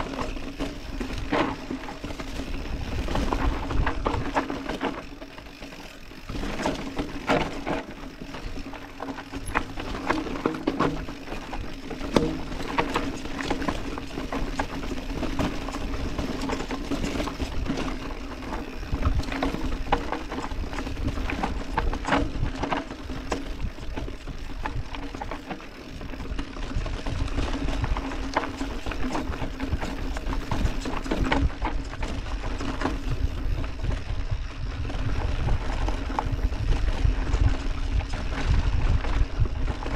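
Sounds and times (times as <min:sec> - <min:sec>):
mountain bike rattling over trail: 0:00.0 - 0:39.9
wind rumble on microphone: 0:00.0 - 0:39.9.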